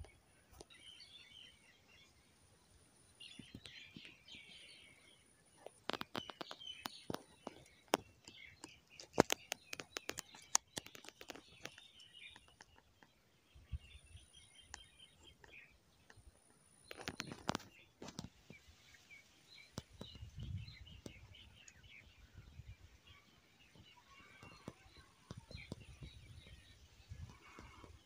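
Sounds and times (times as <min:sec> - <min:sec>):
birds chirping: 0:00.0 - 0:28.0
crackling rustle: 0:05.6 - 0:13.1, 0:16.8 - 0:22.0, 0:23.6 - 0:28.0
sharp clicks and crackles: 0:05.6 - 0:13.1, 0:16.8 - 0:18.3.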